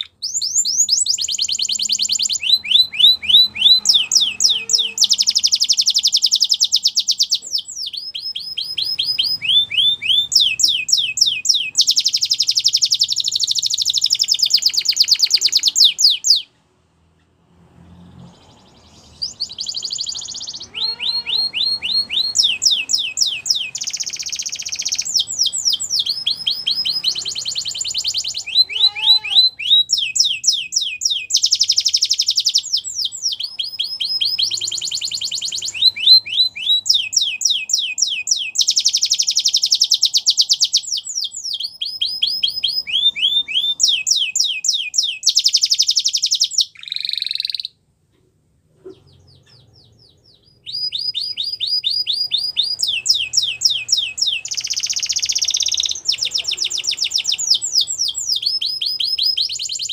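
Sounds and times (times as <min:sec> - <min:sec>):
canary singing: 0:00.0 - 0:16.6, 0:18.0 - 0:47.8, 0:48.8 - 0:59.9.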